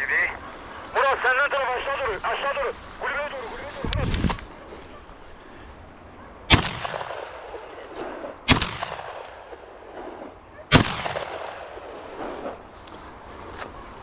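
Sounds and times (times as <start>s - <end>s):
echo rolling across hillside: 0.0s - 14.0s
shotgun shots: 6.5s - 12.5s.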